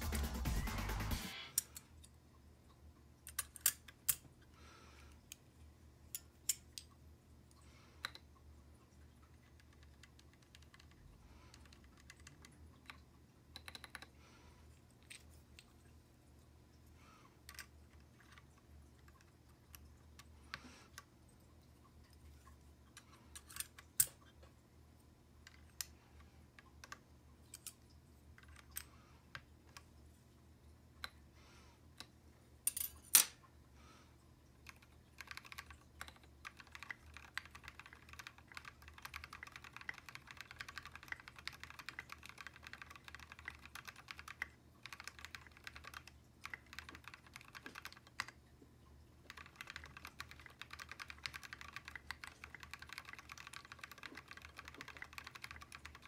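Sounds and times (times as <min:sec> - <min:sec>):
fast typing on keyboard: 0:09.4 - 0:12.6, 0:34.6 - 0:48.4, 0:49.2 - 0:56.0.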